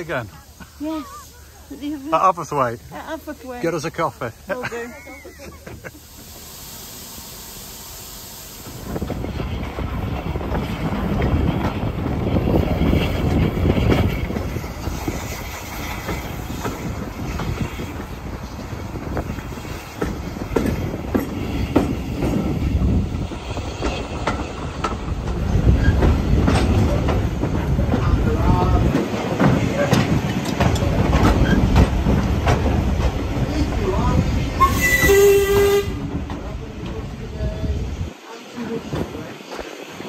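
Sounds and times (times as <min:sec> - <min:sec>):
train carriage rumble: 0:00.0 - 0:40.0
wheels clacking over rail joints: 0:08.8 - 0:37.3.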